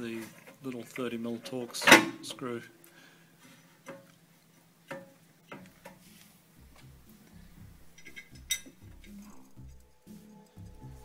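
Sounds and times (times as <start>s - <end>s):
background music with low beat: 5.7s - 11.0s
light metal clicks and clinks: 7.9s - 9.3s.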